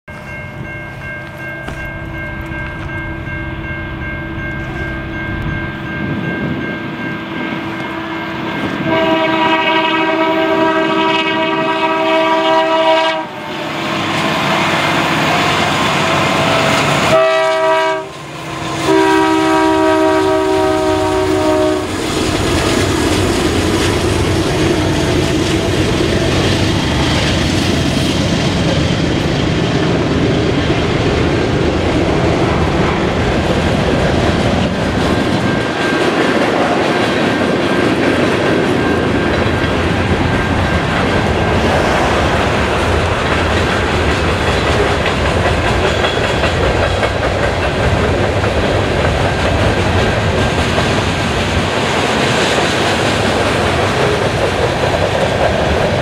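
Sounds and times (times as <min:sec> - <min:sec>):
passing train rumble: 0:00.1 - 0:56.0
train air horn blasts: 0:07.7 - 0:14.8, 0:15.5 - 0:22.1
wheels clacking over rail joints: 0:21.9 - 0:56.0.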